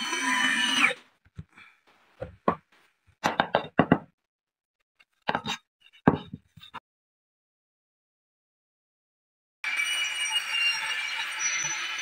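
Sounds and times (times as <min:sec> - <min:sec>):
board knocking on wooden bench: 0:03.3 - 0:04.1.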